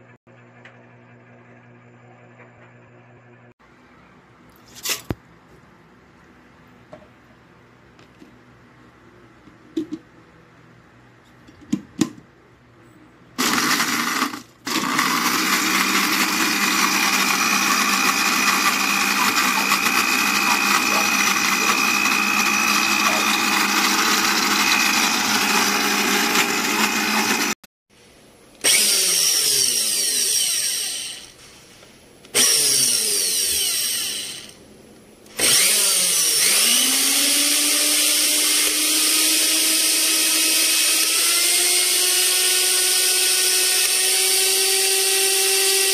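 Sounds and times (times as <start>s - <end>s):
blender motor whine: 13.4s - 27.6s, 28.6s - 31.4s, 32.3s - 34.6s, 35.3s - 45.9s.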